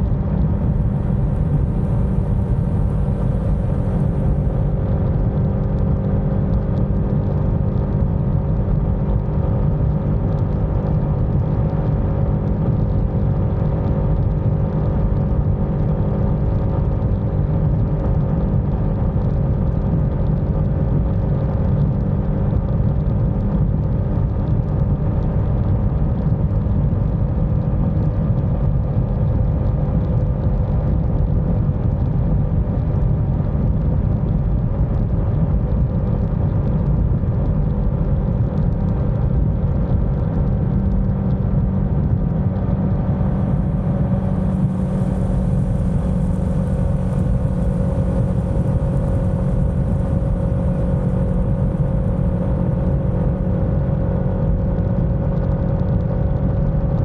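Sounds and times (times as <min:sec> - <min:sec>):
motorcycle engine cruising: 0:00.0 - 0:06.6, 0:41.3 - 0:53.9
wind noise: 0:00.0 - 0:57.0.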